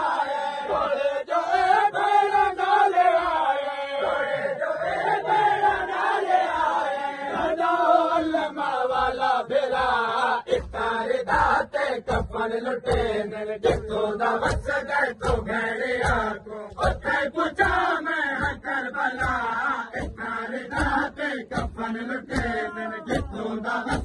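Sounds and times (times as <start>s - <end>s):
men chanting in unison: 0.0s - 24.0s
chest-beating slaps: 10.5s - 24.0s.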